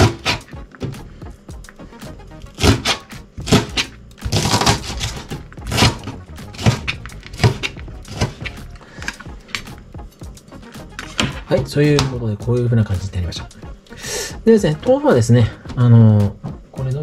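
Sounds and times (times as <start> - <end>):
knife chopping on plastic board: 0.0 - 1.0, 2.6 - 9.8.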